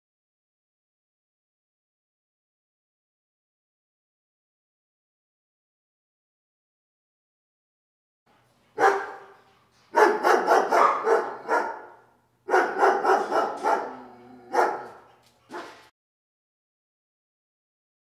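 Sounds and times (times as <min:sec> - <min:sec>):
dog barking: 0:08.8 - 0:15.9.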